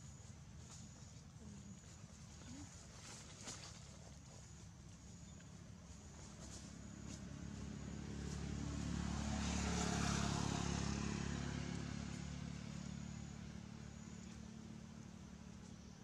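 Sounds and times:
vehicle driving past: 4.9 - 16.0.

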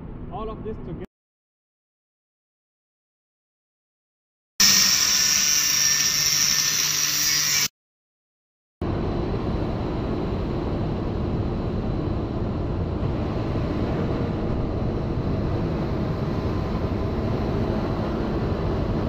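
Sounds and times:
angle grinder cutting steel pipe: 4.6 - 7.7
arc welding crackle: 4.6 - 7.7.

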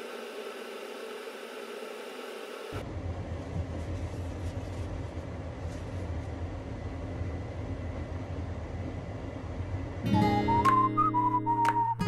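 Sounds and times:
paper towel rustling: 3.4 - 6.4.

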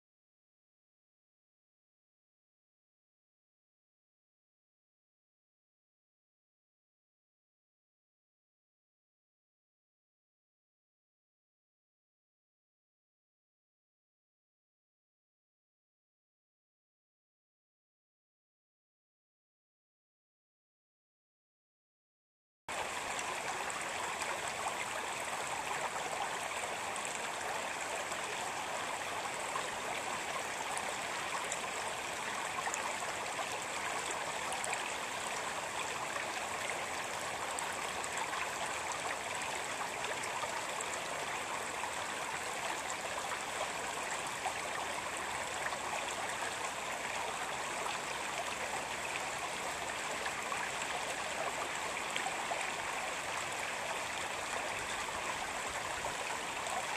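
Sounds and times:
stream flowing over rocks: 22.7 - 56.9.

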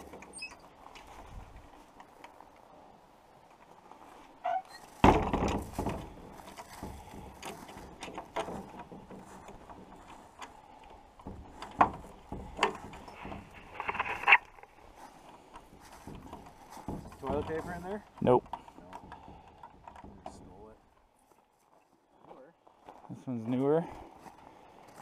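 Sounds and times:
wooden door thump: 5.0 - 6.1.

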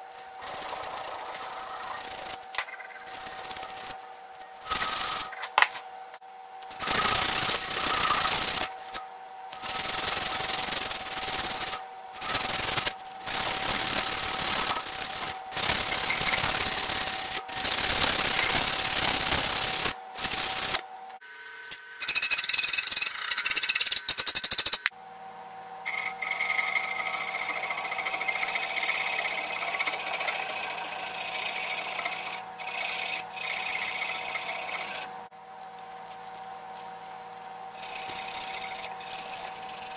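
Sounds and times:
sandpaper rasping on metal: 6.7 - 9.0, 9.6 - 20.8.

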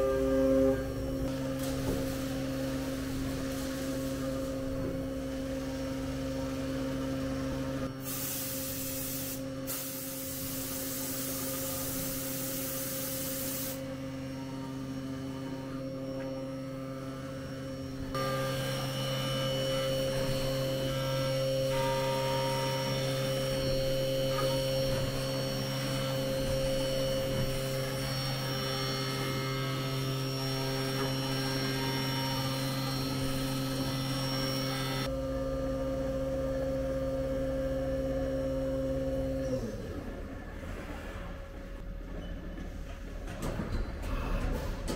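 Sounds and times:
milling spindle hum and whine: 0.0 - 8.0, 10.8 - 41.8
coolant spraying hiss: 8.0 - 13.8.

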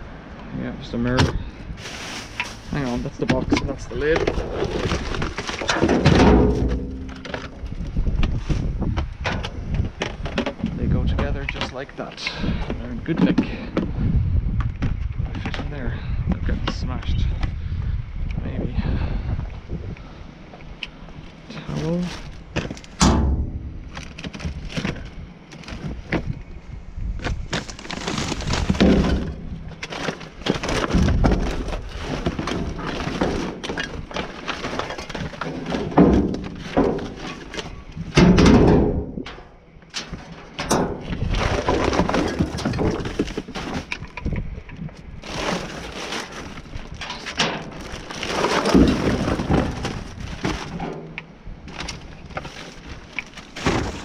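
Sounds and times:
rustling through items: 0.9 - 13.8, 21.2 - 26.4, 27.3 - 38.4, 39.9 - 54.0
objects knocking and clattering: 1.1 - 11.8, 27.3 - 54.0.

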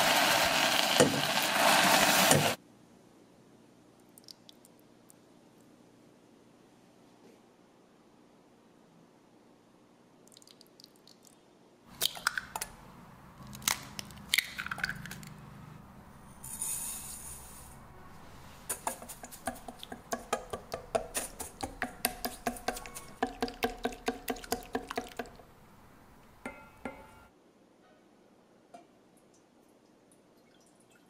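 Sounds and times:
egg cracking on steel bowl: 13.4 - 15.3, 19.0 - 25.4
whisk beating in steel bowl: 18.7 - 25.2.

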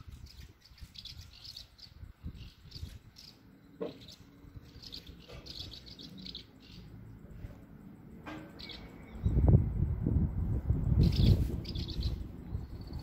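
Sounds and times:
swallows twittering: 0.0 - 7.6, 8.5 - 9.6, 10.9 - 13.0
low rumble: 8.8 - 13.0.

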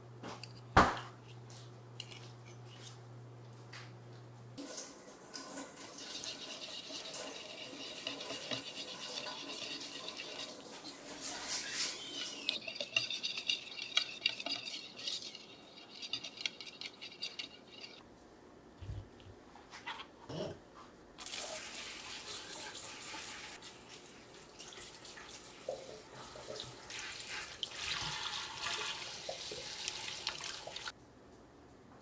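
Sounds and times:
whisk beating liquid in a bowl: 5.6 - 18.0.

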